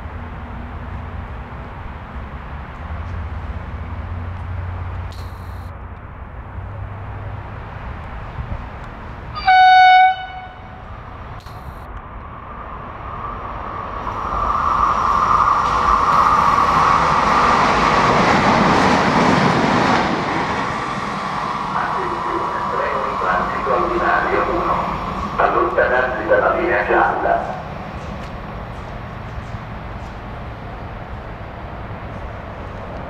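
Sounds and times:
train passing with whine: 0.0 - 33.0
train horn blast: 9.4 - 10.8.

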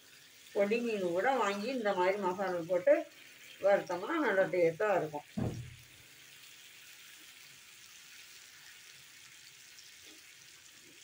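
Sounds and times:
fish sizzling in oil: 0.0 - 11.0.

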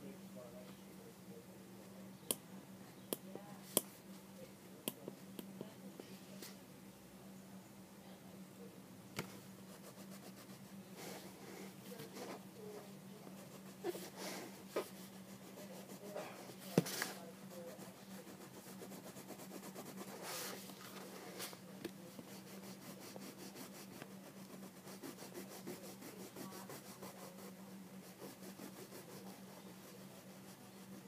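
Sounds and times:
faint hum: 0.0 - 31.0
marker scratching on paper: 13.2 - 21.5, 22.2 - 31.0.

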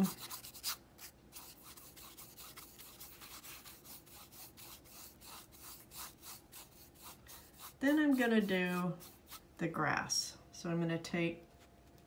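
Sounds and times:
paintbrush stroking on canvas: 0.0 - 9.6.

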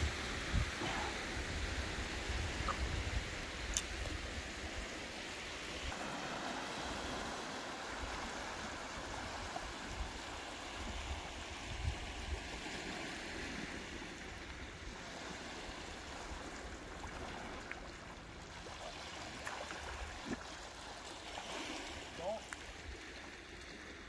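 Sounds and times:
wind rumbling on microphone: 0.0 - 6.0, 6.8 - 17.6
waves lapping on cobble beach: 0.0 - 24.0.

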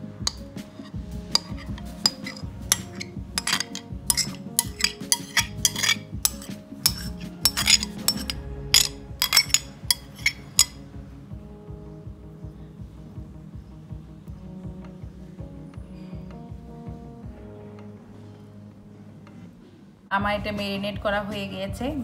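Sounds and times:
soft background music: 0.0 - 22.0
spoon scraping against bowl: 0.3 - 10.8.

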